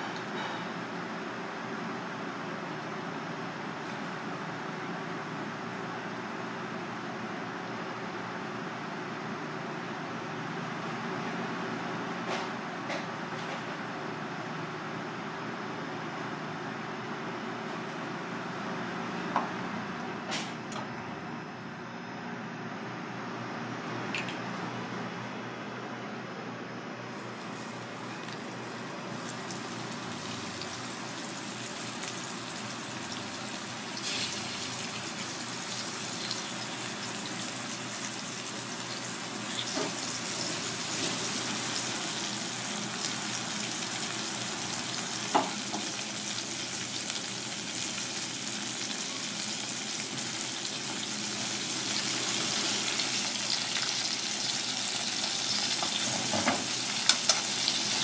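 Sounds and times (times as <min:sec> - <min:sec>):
fish sizzling in oil: 0:27.4 - 0:58.0.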